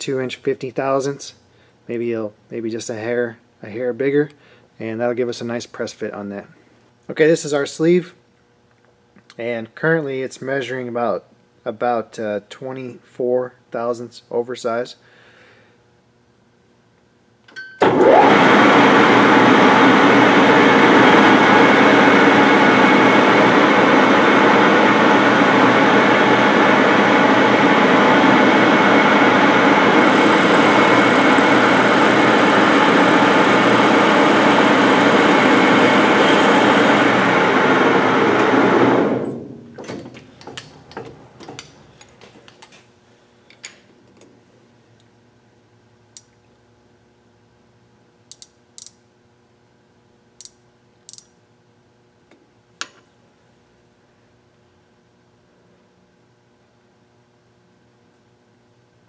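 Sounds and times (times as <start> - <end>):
metal lathe cutting: 25.9 - 39.2.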